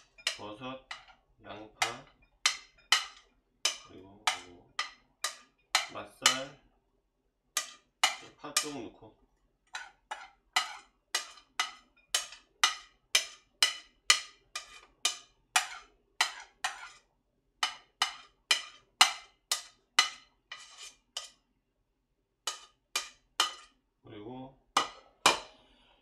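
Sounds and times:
utensil clinking on ceramic dishes: 0:00.0 - 0:06.6, 0:07.6 - 0:08.8, 0:09.7 - 0:17.0, 0:17.6 - 0:21.4, 0:22.5 - 0:23.7.

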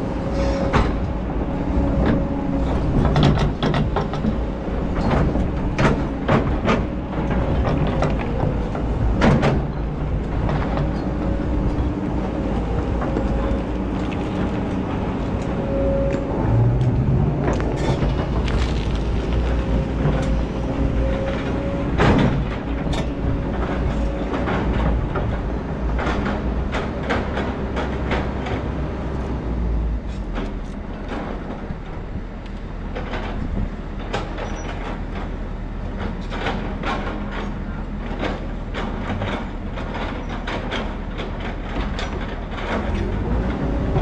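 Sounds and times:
excavator diesel engine: 0:00.0 - 0:44.0
bucket scraping rock and soil: 0:17.5 - 0:20.0.

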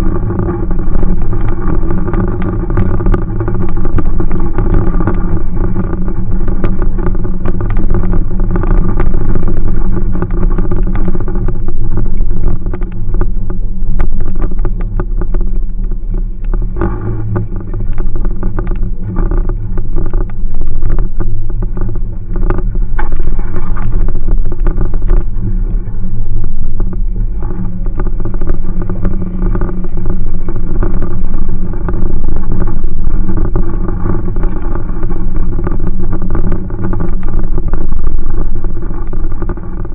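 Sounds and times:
car engine running: 0:00.0 - 0:39.9.

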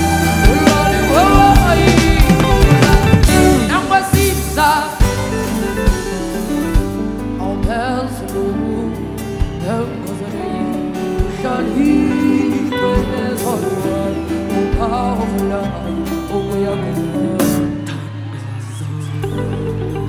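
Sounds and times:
woman singing: 0:07.4 - 0:20.0.

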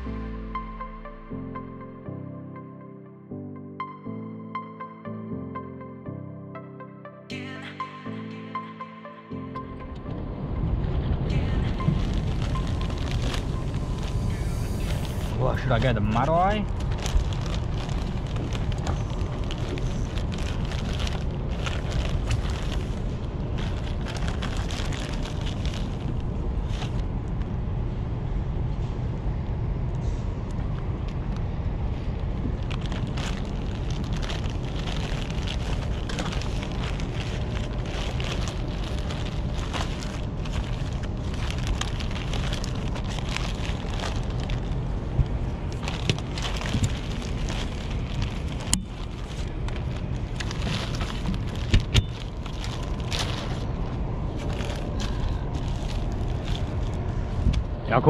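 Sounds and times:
low rumble: 0:03.9 - 0:58.0
plastic bags crinkling: 0:11.7 - 0:27.0, 0:32.5 - 0:57.5.

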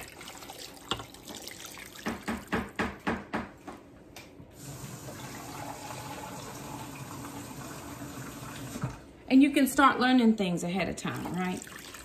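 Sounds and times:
water pouring and splashing: 0:00.0 - 0:02.8, 0:11.1 - 0:12.0
kitchen tap running: 0:00.0 - 0:03.0, 0:04.6 - 0:09.0, 0:11.0 - 0:12.0.

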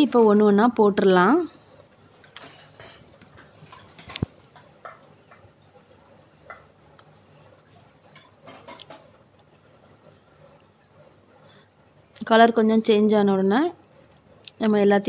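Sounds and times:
deep-frying crackling in oil: 0:02.1 - 0:07.0.

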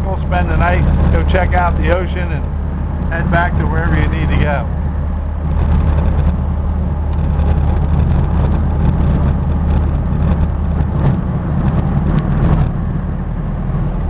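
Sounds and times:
tyre and road noise: 0:00.0 - 0:14.0
van engine drone: 0:00.0 - 0:14.0.

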